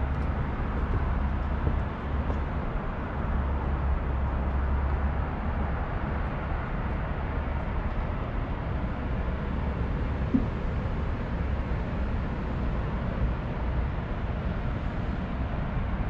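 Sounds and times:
short knock: 0:10.3 - 0:10.6.

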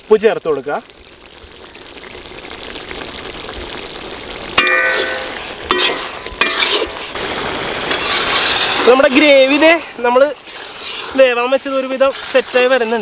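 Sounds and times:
gravy sizzling and bubbling in a wok: 0:00.0 - 0:13.0
steel ladle clanking against pan: 0:04.6 - 0:06.9.

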